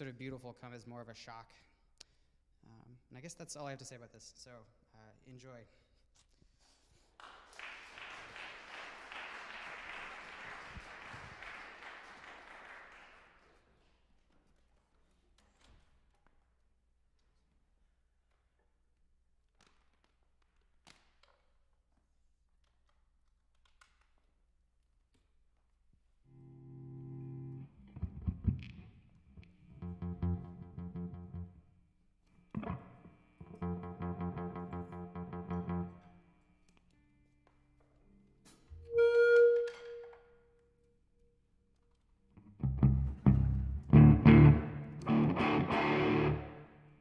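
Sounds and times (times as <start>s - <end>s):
audience applauding: 7.2s - 13.6s
buzzing electric guitar note: 26.3s - 31.6s, 32.6s - 36.2s, 42.4s - 46.8s.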